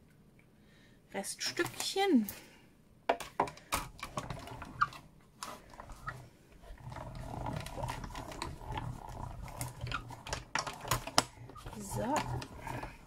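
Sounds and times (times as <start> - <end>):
hand-cranked machine rumbling: 3.8 - 13.0.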